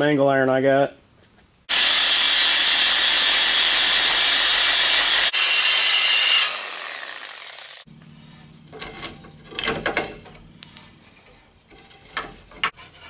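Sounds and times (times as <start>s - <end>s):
reciprocating saw cutting steel: 1.7s - 7.9s.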